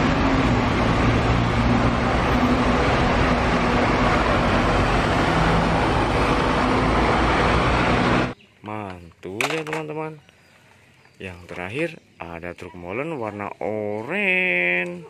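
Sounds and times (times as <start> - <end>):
bus engine running: 0.0 - 8.4
street noise: 0.0 - 15.0.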